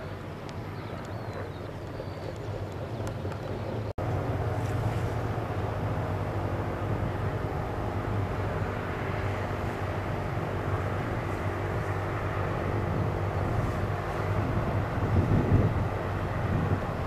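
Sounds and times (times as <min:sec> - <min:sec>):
propeller aircraft droning: 0:00.0 - 0:17.0.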